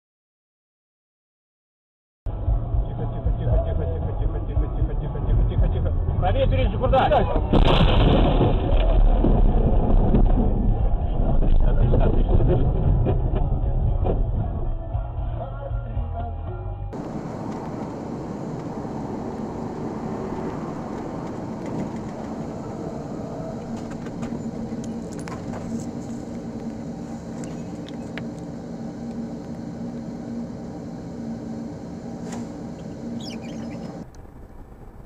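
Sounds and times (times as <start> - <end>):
road noise: 16.8 - 35.0
car engine running: 17.0 - 35.0.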